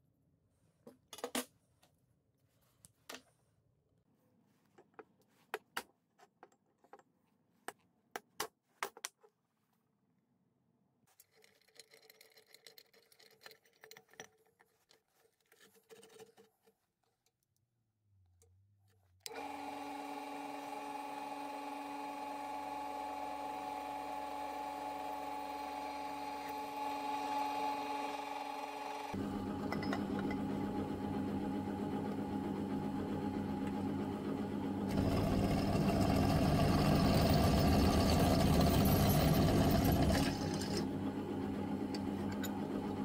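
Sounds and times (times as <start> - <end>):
drill press drilling metal: 34.9 - 40.9.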